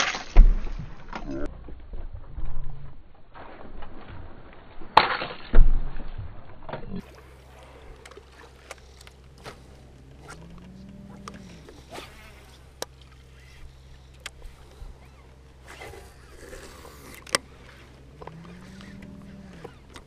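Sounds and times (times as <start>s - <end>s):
boat motor humming: 7.0s - 20.0s.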